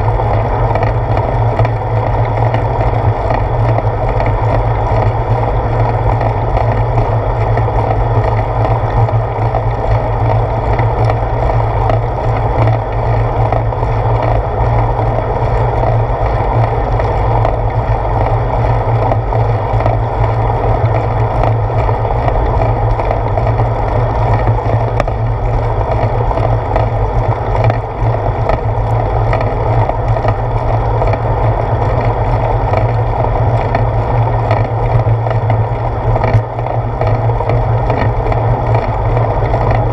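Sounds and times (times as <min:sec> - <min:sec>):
bicycle rolling on paved road: 0:00.0 - 0:39.9
small ticks: 0:05.8 - 0:18.4, 0:25.9 - 0:39.9.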